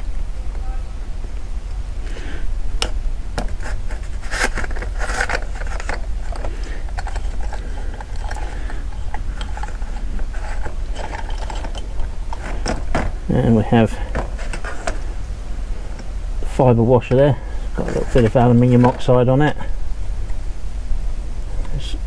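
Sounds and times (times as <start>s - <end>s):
low hum: 0.0s - 22.0s
metal parts scraping and clicking: 3.4s - 13.2s, 14.1s - 15.1s, 17.8s - 19.6s.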